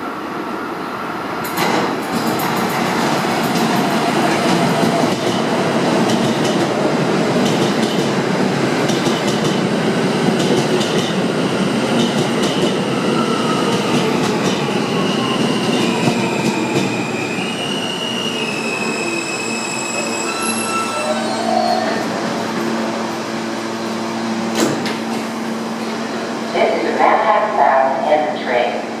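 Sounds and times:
subway train rumbling: 0.0 - 29.0
high-pitched brake whine: 16.2 - 22.2.

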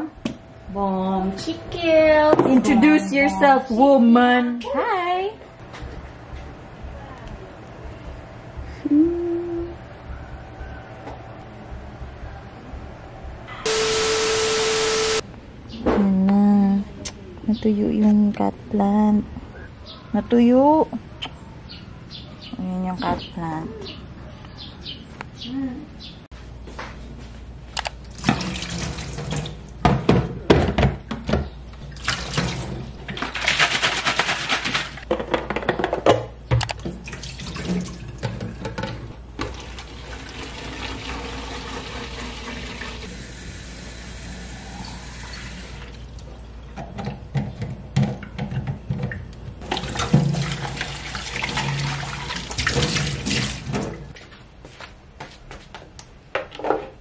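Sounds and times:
tap running water: 39.4 - 43.1.

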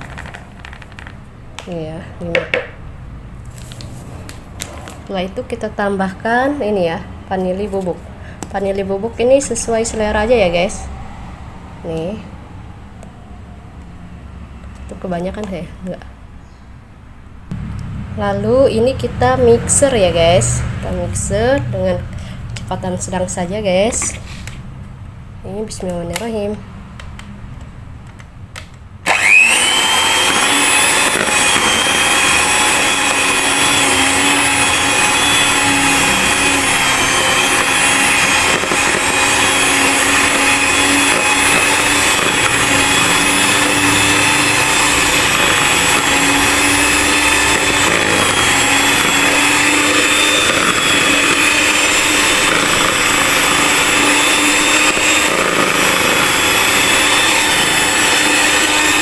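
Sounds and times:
electric hand mixer whining: 29.0 - 59.0.

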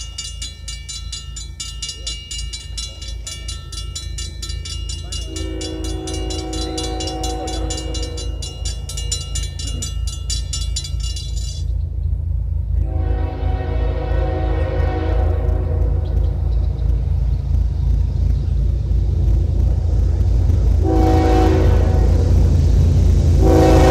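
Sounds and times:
crossing bell ringing: 0.0 - 12.0
low rumble: 0.0 - 23.9
train air horn: 5.2 - 8.9, 12.8 - 16.0, 20.8 - 22.3, 23.4 - 23.9.

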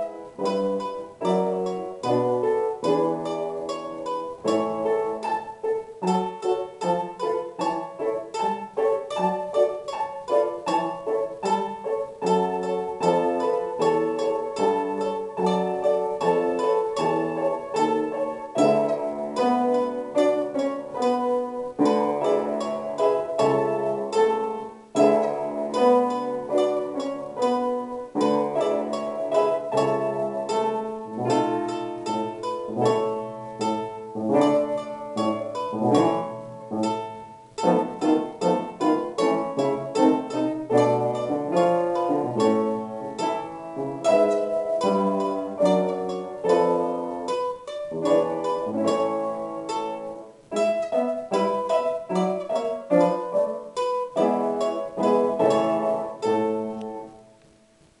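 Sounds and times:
domra plucked notes: 0.0 - 58.0
upright piano accompaniment: 0.0 - 58.0.

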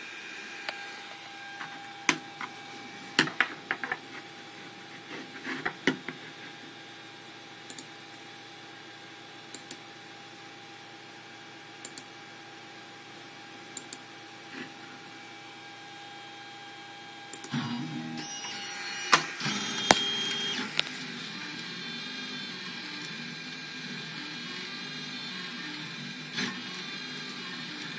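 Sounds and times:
knocks and clicks: 3.1 - 4.1.

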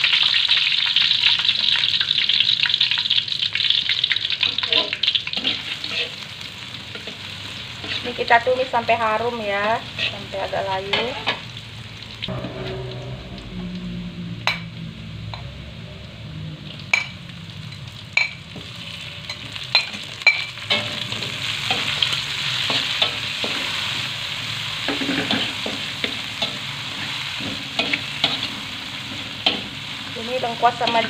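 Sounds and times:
shallots sizzling in oil: 0.0 - 12.4, 16.4 - 31.0
metal spatula scraping wok: 4.4 - 8.6, 9.2 - 11.4, 12.3 - 15.4, 18.6 - 24.1, 24.8 - 31.0.

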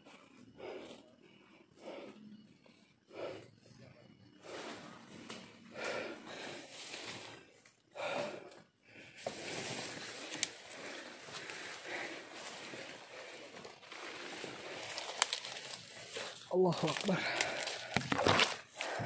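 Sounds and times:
heavy breathing: 0.0 - 19.0
leaves and undergrowth rustling: 4.4 - 8.2, 9.2 - 19.0.

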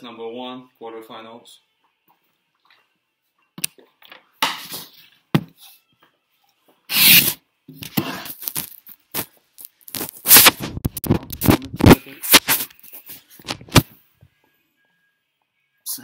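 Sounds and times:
phone handling rubs and scrapes: 6.9 - 14.0.

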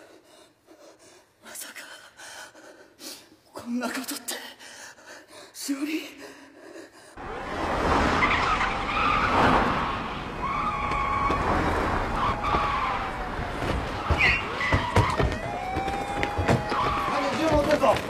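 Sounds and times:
cars braking with tires squealing: 7.2 - 15.8
siren wailing: 10.4 - 17.4.

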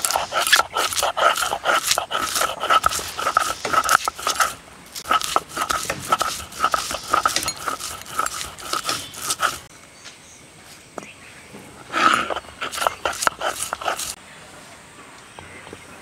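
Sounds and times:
stone roller grinding on slab: 0.0 - 9.7, 11.8 - 14.2.

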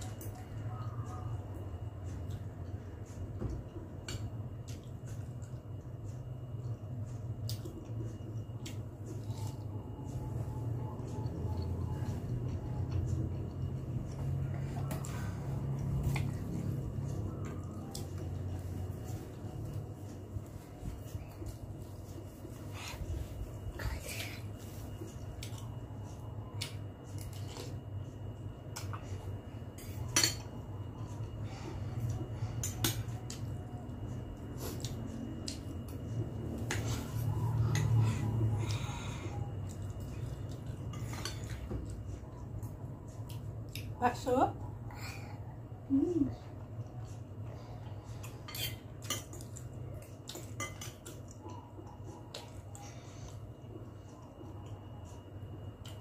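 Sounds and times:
steady low hum: 0.0 - 56.0
person chewing noodles: 1.6 - 43.9
cutlery clinking against glass bowl: 50.3 - 51.3.

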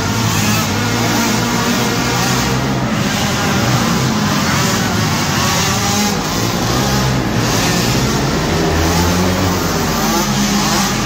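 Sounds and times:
quad engines revving: 0.0 - 11.0.

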